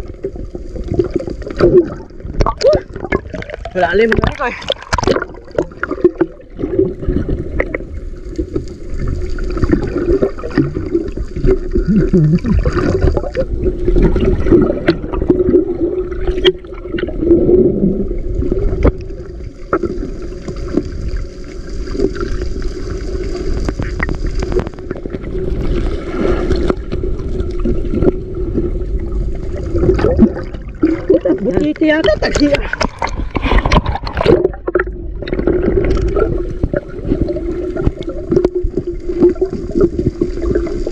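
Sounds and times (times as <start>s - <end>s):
muffled underwater rush: 0.0s - 40.9s.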